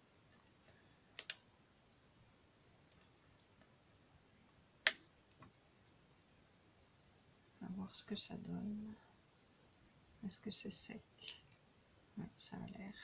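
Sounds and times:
small sharp clicks: 0:00.4 - 0:01.4.

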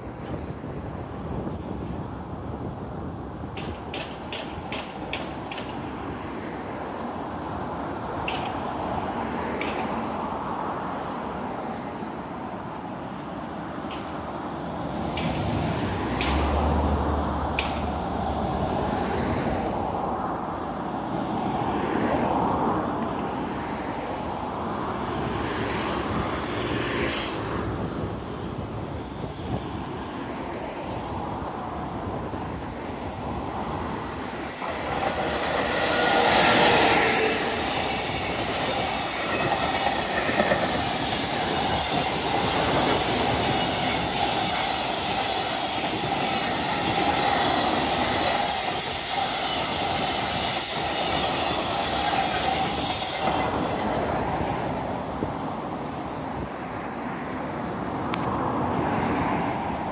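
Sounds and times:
freight train passing: 0:00.0 - 0:59.9
wheels clattering over rail joints: 0:03.4 - 0:06.1, 0:08.2 - 0:10.1, 0:13.8 - 0:14.3, 0:17.4 - 0:18.0, 0:33.8 - 0:54.1.

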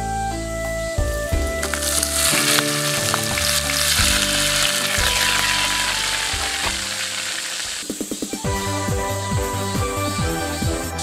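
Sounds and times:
hot oil sizzling: 0:01.6 - 0:08.0.

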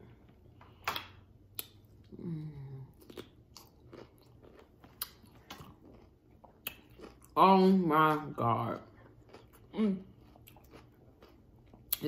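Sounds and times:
person humming mm: 0:02.1 - 0:03.0
crunchy bites and chewing: 0:03.0 - 0:07.4, 0:09.2 - 0:12.0.

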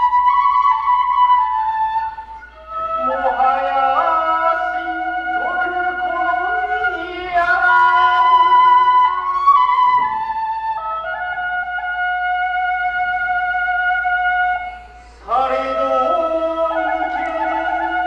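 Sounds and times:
bamboo flute slow melody: 0:00.0 - 0:18.0.

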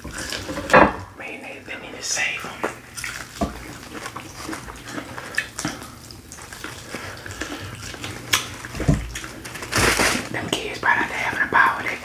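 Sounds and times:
wet chewing and lip smacking: 0:02.4 - 0:12.0.

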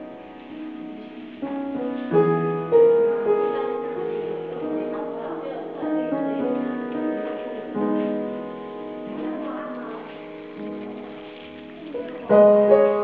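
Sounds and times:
soft piano music: 0:00.0 - 0:13.0.

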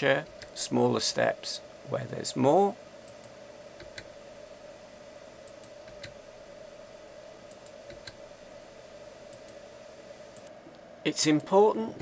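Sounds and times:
faint hum: 0:00.0 - 0:12.0.

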